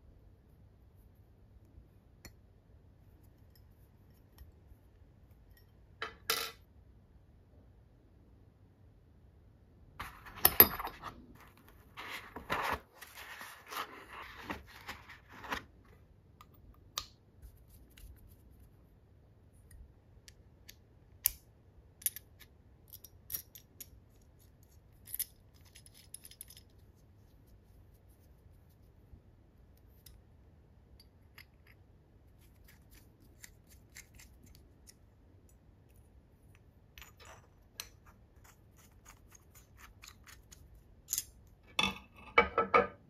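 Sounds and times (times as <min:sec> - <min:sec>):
small metal parts clinking: 0:24.9 - 0:26.7.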